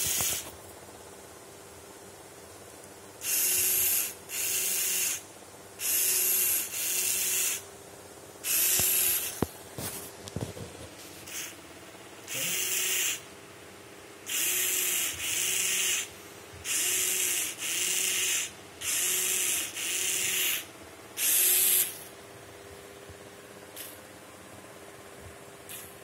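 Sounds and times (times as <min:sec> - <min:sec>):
servo motors whirring: 0:00.0 - 0:00.5, 0:03.2 - 0:05.2, 0:05.8 - 0:07.7, 0:08.4 - 0:09.5, 0:11.3 - 0:11.6, 0:12.3 - 0:13.2, 0:14.3 - 0:22.1.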